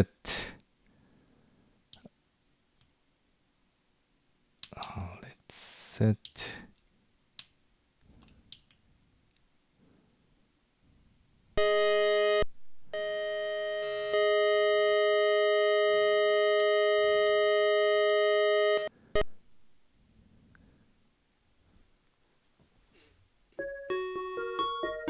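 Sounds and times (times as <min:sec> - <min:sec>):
synthesizer held notes: 0:23.6 - 0:25.0.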